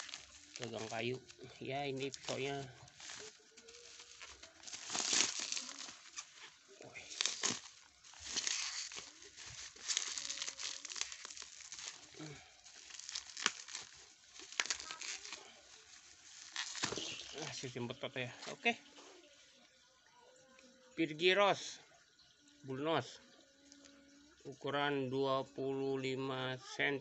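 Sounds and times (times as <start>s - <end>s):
plastic wrapping and tape crinkling: 0.0s - 17.8s.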